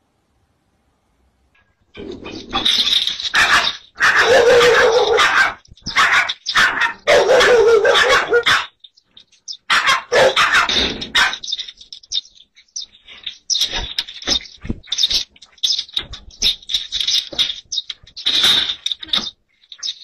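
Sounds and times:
small dog barking and yelping: 3.3 - 8.8, 9.6 - 11.5.

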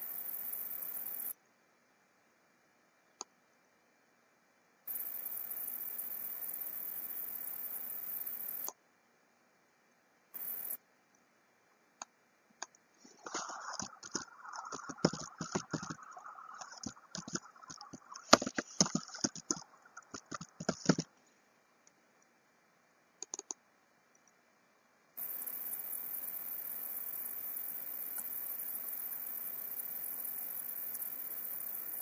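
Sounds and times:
steady hiss: 0.0 - 1.7, 4.9 - 8.8, 10.3 - 10.9, 25.2 - 32.0
computer mouse clicks: 12.0 - 21.1, 23.2 - 24.4
scroll wheel ticks: 13.4 - 21.1, 23.2 - 23.6.

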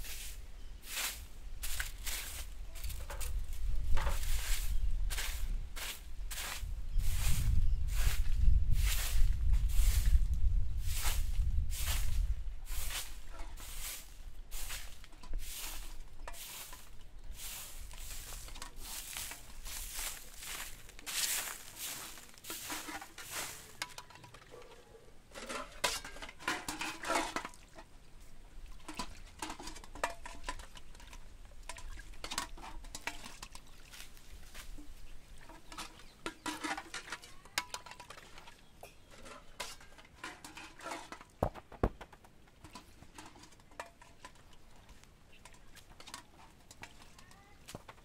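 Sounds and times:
broom sweeping dirt: 0.0 - 24.3, 25.3 - 27.6, 33.9 - 37.5
football kicked on earth: 41.4 - 42.2.

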